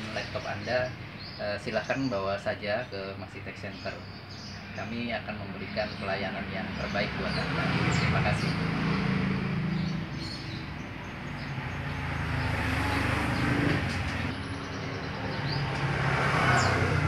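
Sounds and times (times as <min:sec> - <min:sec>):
passing vehicles engine hum: 0:04.2 - 0:17.0.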